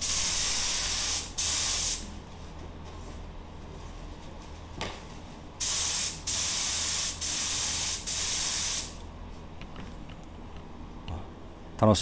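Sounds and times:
spray gun hissing bursts: 0:00.0 - 0:02.1, 0:05.6 - 0:09.0.

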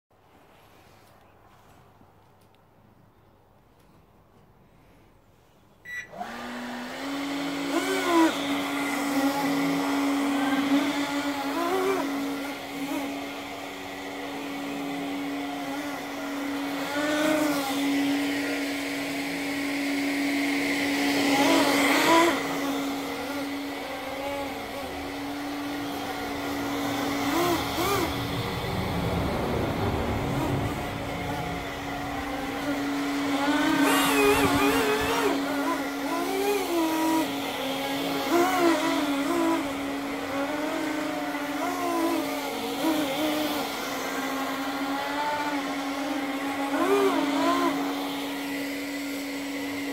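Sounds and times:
model hovercraft motor whine: 0:07.7 - 0:13.0, 0:21.1 - 0:47.8.

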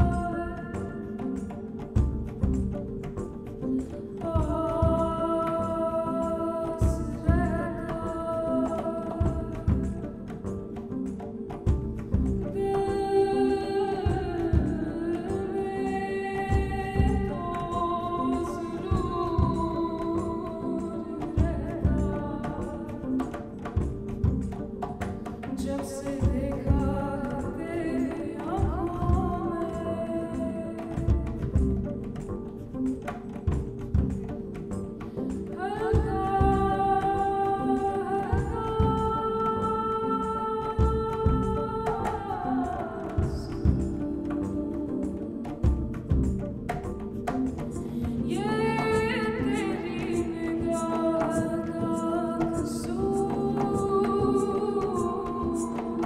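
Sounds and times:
plucked double bass: 0:00.0 - 0:06.0, 0:06.8 - 0:12.9, 0:14.0 - 0:15.5, 0:16.5 - 0:40.0, 0:40.6 - 0:51.7
woman singing long notes: 0:12.6 - 0:23.2, 0:35.6 - 0:46.2, 0:48.0 - 0:56.0.

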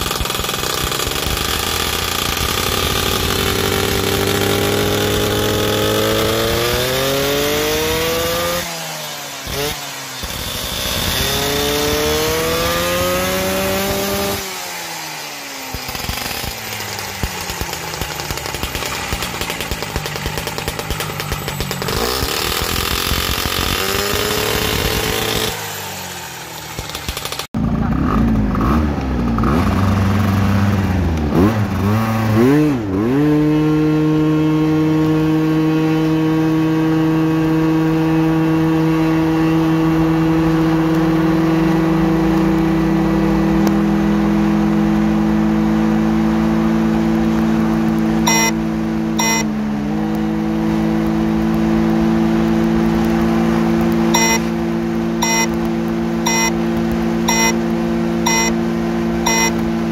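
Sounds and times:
scooter engine at full throttle: 0:00.0 - 0:59.9
short electronic beeps: 0:48.3 - 0:48.6, 0:49.2 - 0:49.5, 0:54.1 - 0:54.5, 0:55.2 - 0:55.6, 0:56.2 - 0:56.6, 0:57.3 - 0:57.6, 0:58.2 - 0:58.6, 0:59.2 - 0:59.6.

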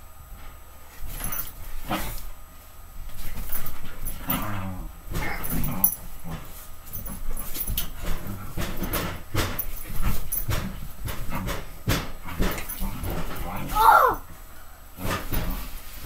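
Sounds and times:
bedding rustling: 0:00.3 - 0:16.0
dog growling: 0:04.2 - 0:06.5.

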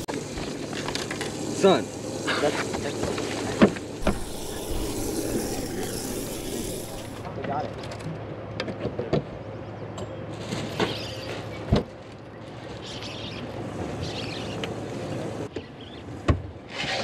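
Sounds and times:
faint hiss: 0:04.0 - 0:07.3
steady low hum: 0:04.0 - 0:07.3.

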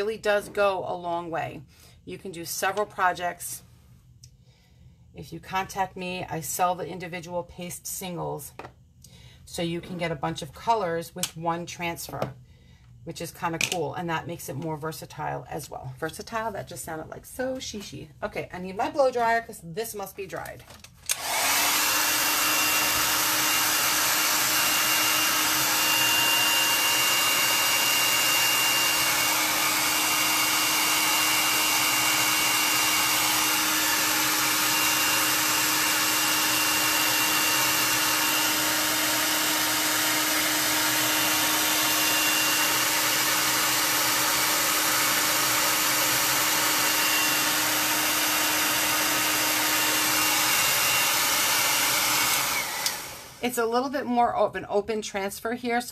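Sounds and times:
blow dryer running: 0:21.1 - 0:53.7.

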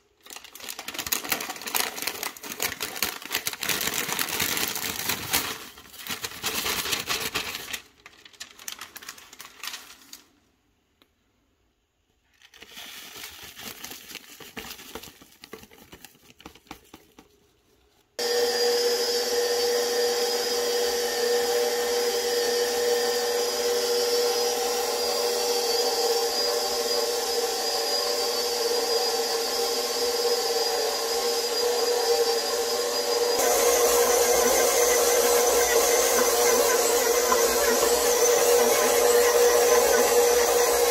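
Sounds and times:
plastic zip bag rustling: 0:00.0 - 0:10.4
stand mixer motor humming: 0:18.2 - 0:40.9.

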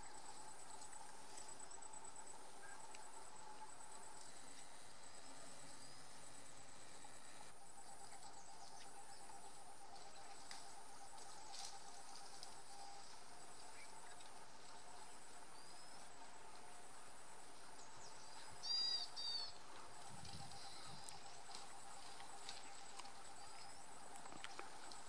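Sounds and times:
insects trilling and buzzing: 0:00.0 - 0:25.0
bird calls: 0:17.8 - 0:19.6.

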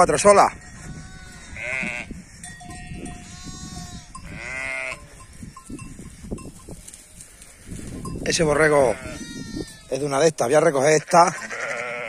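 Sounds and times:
sheep bleating: 0:00.6 - 0:05.2, 0:08.6 - 0:10.0, 0:11.0 - 0:12.0.

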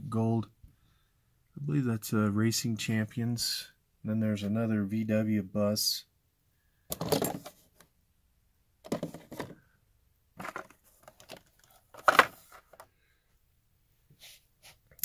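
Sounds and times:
toy cars rustling and clicking: 0:10.4 - 0:12.9.

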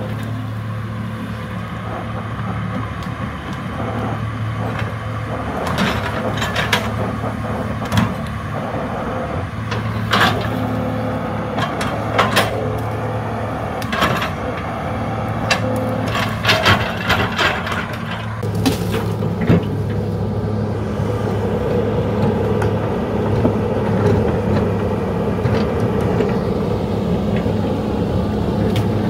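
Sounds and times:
excavator diesel engine running: 0:00.0 - 0:29.0
machine knocks and clanks: 0:15.5 - 0:20.0.

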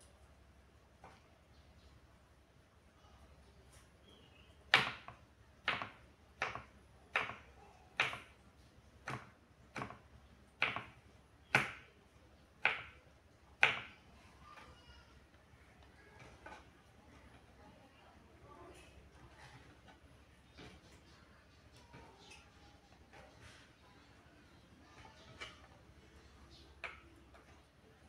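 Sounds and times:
knife chopping on wooden board: 0:04.7 - 0:08.3, 0:10.6 - 0:11.8.

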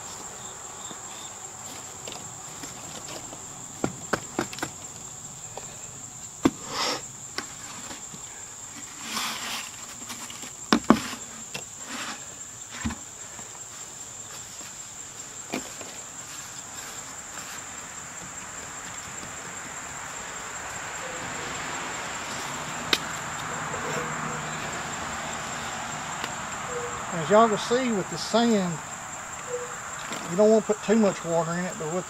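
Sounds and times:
insect chorus droning: 0:00.0 - 0:32.0.

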